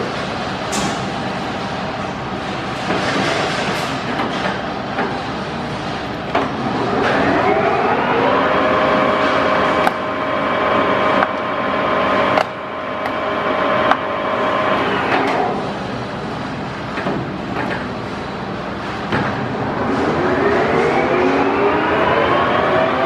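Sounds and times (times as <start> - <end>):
lathe whine: 6.8 - 15.7, 19.6 - 23.0.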